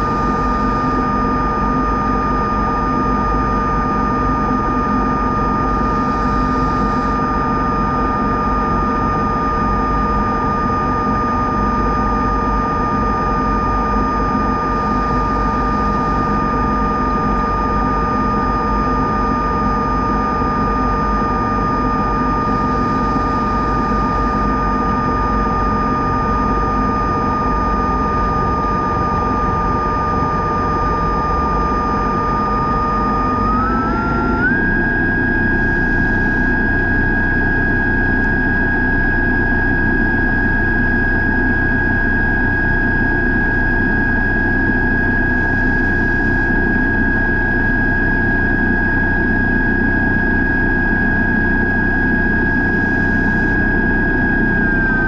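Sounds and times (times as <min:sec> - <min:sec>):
underwater scooter motor whine: 0:00.0 - 0:55.0.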